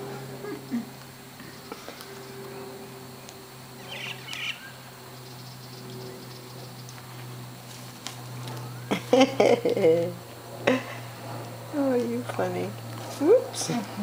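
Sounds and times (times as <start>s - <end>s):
steady low hum: 0.0s - 14.0s
cockatoo raspy calls: 3.8s - 6.9s.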